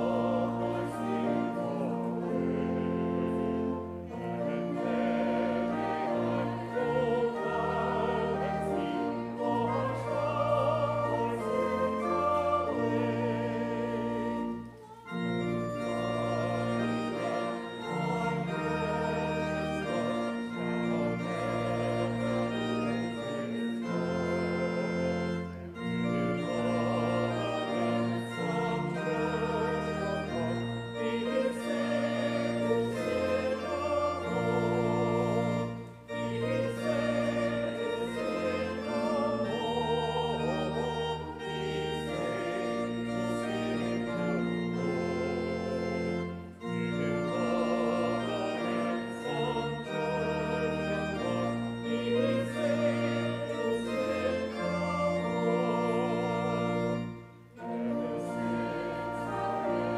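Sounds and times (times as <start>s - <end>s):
organ chords: 0.0s - 59.9s
voices singing a hymn: 0.0s - 59.9s.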